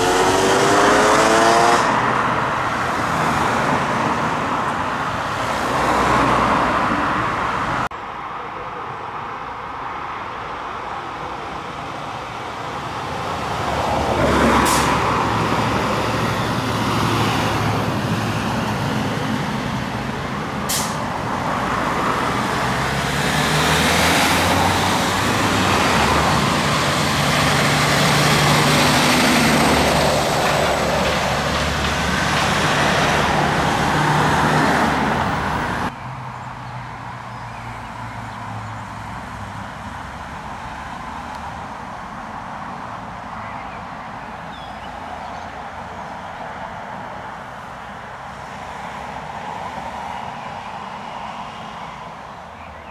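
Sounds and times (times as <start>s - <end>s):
heavy trucks passing: 0.0s - 7.9s, 10.4s - 52.6s
quiet street background: 0.0s - 28.5s
air brake hisses: 14.6s - 15.0s, 20.7s - 21.0s.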